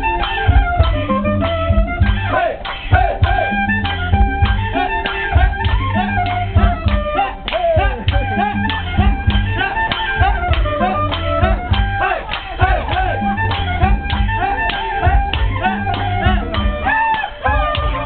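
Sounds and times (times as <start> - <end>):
fast drum beat: 0.0 - 16.9
saxophone melody: 0.0 - 18.0.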